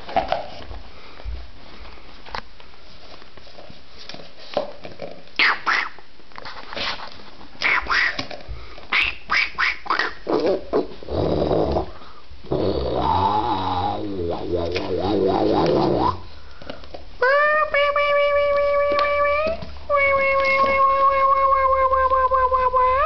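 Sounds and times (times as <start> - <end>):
puppies scuffling: 0.0 - 5.3
puppy growling: 10.2 - 16.3.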